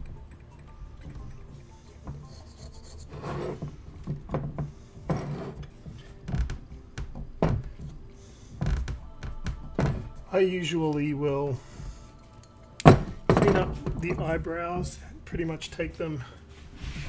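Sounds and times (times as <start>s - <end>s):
chisel scraping plaster: 2.1s - 3.8s, 5.0s - 6.1s.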